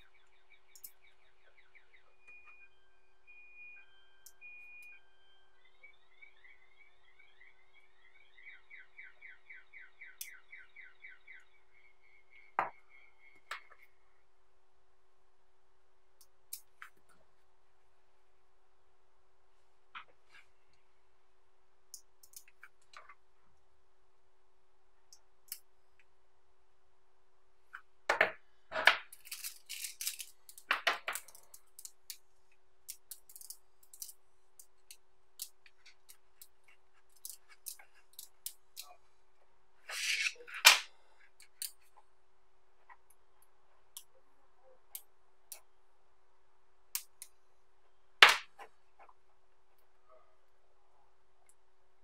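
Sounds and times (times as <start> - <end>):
magnetic balls clicking and snapping: 0.7 - 1.0, 21.9 - 23.2, 27.8 - 32.2, 32.8 - 38.9, 46.9 - 47.4.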